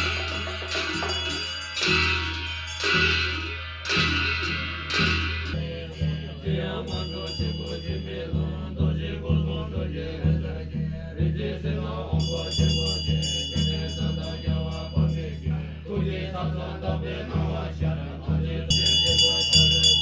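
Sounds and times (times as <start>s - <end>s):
hand cymbals clashing: 0.0s - 8.8s, 12.1s - 15.9s, 18.7s - 20.0s
frame drum beating: 0.0s - 15.6s.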